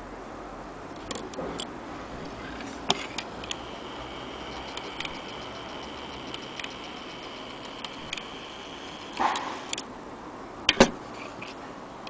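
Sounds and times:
clock movement clicks and ticks: 1.0s - 9.9s.

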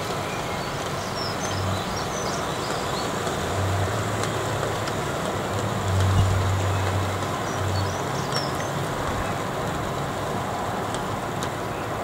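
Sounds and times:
rain falling: 0.0s - 12.0s.

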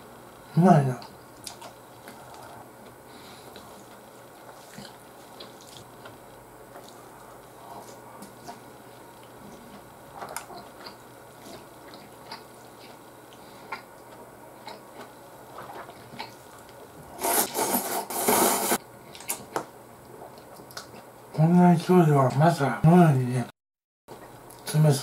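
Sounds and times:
wet chewing and mouth clicks: 1.4s - 16.9s, 19.1s - 21.2s
loud slurp of noodles: 17.2s - 18.8s.

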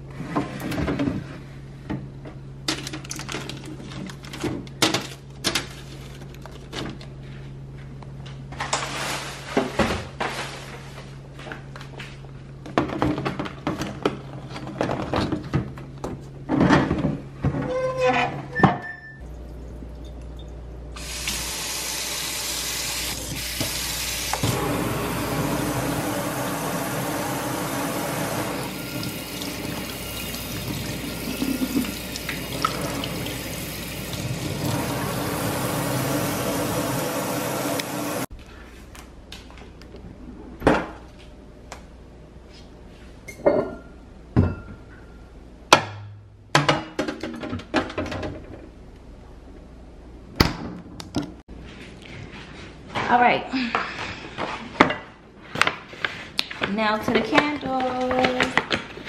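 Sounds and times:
low steady hum: 0.1s - 21.4s
water running into metal sink: 21.0s - 38.3s.

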